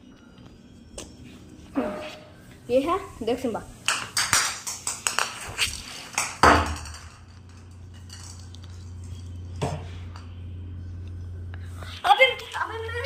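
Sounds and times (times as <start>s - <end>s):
steady low hum: 0.0s - 13.0s
ball bouncing on tiled floor: 3.8s - 8.4s.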